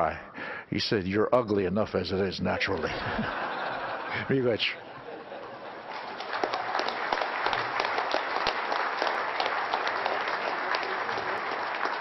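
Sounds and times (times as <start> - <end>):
audience applauding: 5.3 - 12.0.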